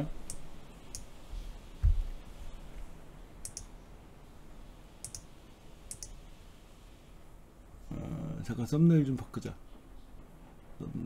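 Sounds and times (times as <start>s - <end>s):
computer mouse clicking: 3.4s - 3.7s, 5.0s - 5.3s, 5.9s - 6.2s.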